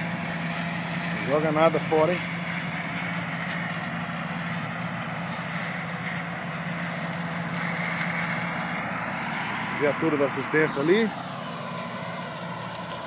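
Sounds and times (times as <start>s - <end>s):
combine harvester engine hum: 0.0s - 13.0s.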